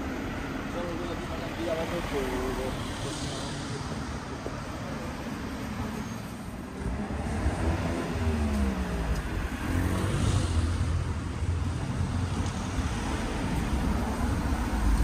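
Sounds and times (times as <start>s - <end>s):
car passing by: 6.8s - 11.3s.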